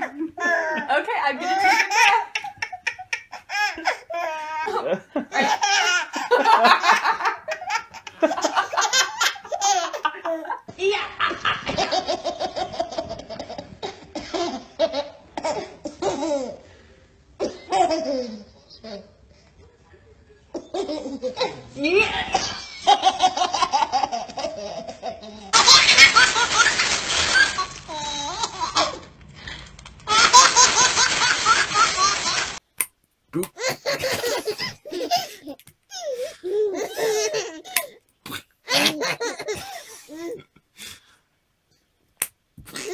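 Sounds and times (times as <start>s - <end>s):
baby laughing hard: 0.4s - 10.4s, 22.3s - 29.1s, 30.1s - 32.6s, 33.5s - 37.9s, 38.7s - 40.4s
plastic crinkling: 25.7s - 28.2s, 29.2s - 32.6s
toddler laughing: 33.6s - 37.9s, 38.7s - 40.4s.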